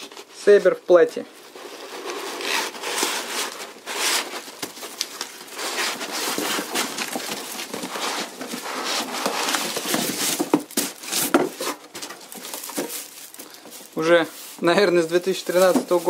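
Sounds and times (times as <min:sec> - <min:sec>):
cardboard and paper rustling: 0:01.3 - 0:16.0
plastic wrap crinkling: 0:01.4 - 0:16.0.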